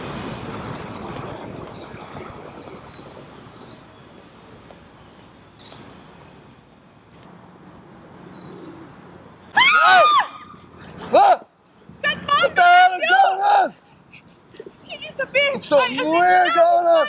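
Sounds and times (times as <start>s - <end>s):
small birds chirping: 6.8s - 9.5s.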